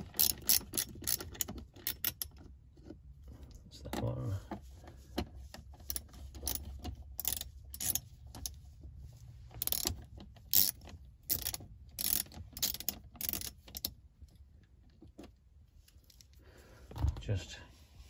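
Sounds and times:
ratchet wrench clicking: 0:00.0 - 0:02.3, 0:05.9 - 0:06.6, 0:07.2 - 0:08.5, 0:09.6 - 0:14.0.

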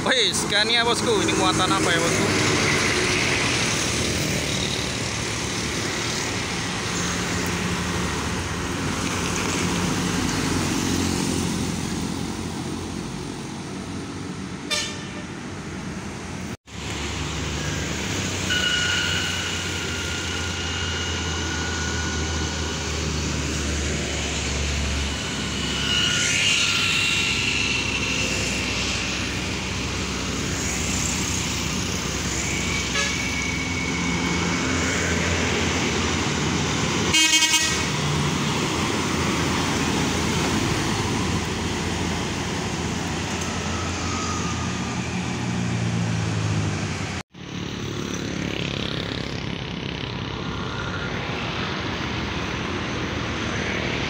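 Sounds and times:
trucks and traffic passing: 0:00.0 - 0:54.0
vehicle horn blast: 0:14.7 - 0:15.4, 0:18.5 - 0:20.6, 0:32.7 - 0:33.5, 0:37.1 - 0:38.0.

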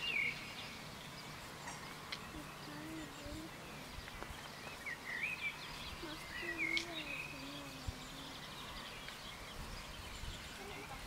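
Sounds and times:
outdoor background noise: 0:00.0 - 0:11.0
small birds chirping: 0:00.0 - 0:11.0.

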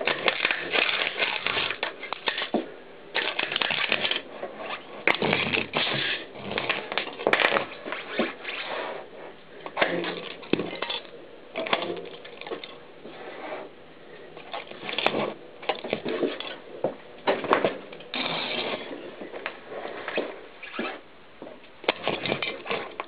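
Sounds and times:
plastic shards clattering and scraping: 0:00.0 - 0:02.6, 0:03.2 - 0:08.7, 0:09.6 - 0:12.8, 0:14.4 - 0:16.6
bike tyre rolling over plastic: 0:00.0 - 0:13.7, 0:14.4 - 0:23.0.

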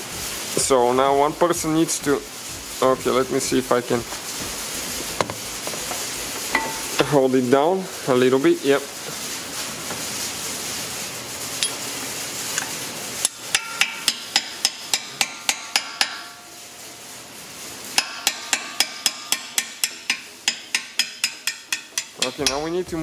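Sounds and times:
hammer tapping metal pin: 0:18.0 - 0:22.7.

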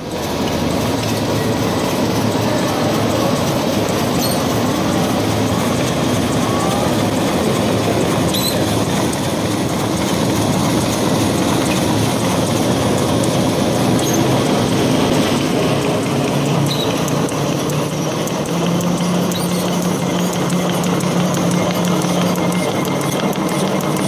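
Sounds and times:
machine clatter and hum: 0:00.0 - 0:24.0
faint short squeaks: 0:04.2 - 0:04.6, 0:08.3 - 0:08.7.

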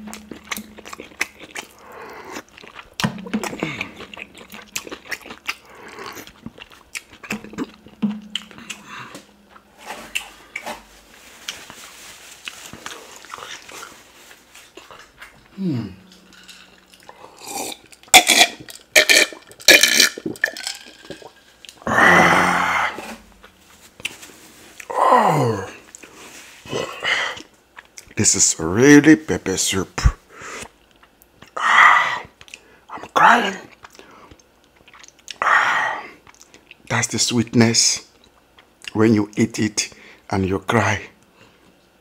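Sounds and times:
slurping and chewing: 0:00.0 - 0:25.0, 0:30.4 - 0:36.9
person humming mmm: 0:03.3 - 0:04.8, 0:15.5 - 0:16.2, 0:21.8 - 0:23.2.

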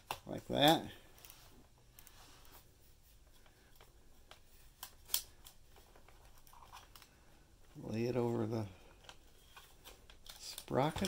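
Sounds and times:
film cassette clicks and rustles: 0:03.3 - 0:07.2, 0:08.9 - 0:11.0.

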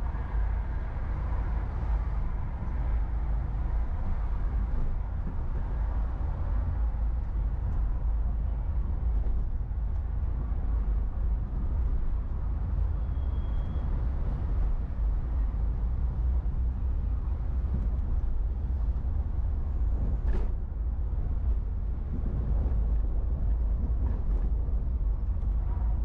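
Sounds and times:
car driving in traffic: 0:00.0 - 0:26.0.

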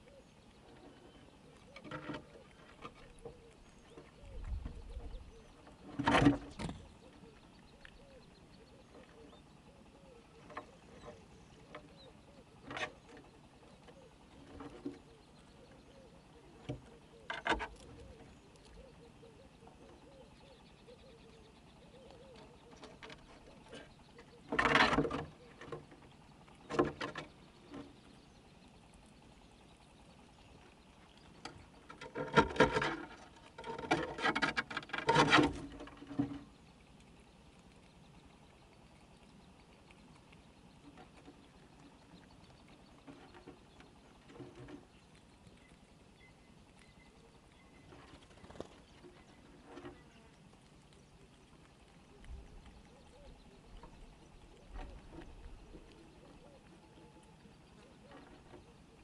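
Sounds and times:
squirrels scrabbling among nuts: 0:00.0 - 0:59.0.

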